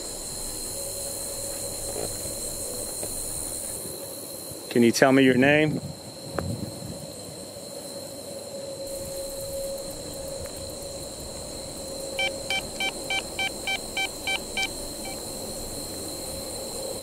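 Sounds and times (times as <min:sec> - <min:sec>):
electronic meter beeps: 0:12.2 - 0:15.2.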